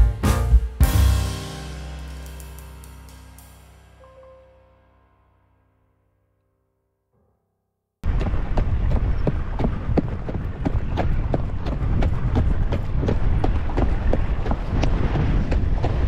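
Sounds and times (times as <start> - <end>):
wind rumble on microphone: 8.0 - 16.0.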